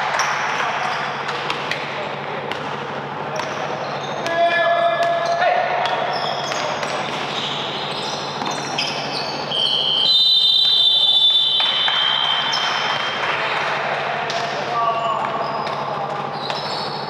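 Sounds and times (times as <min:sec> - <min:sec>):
sneakers squeaking on court: 0:03.3 - 0:10.0, 0:15.0 - 0:17.0
high squeal: 0:07.3 - 0:13.2
ball bouncing: 0:08.4 - 0:08.9.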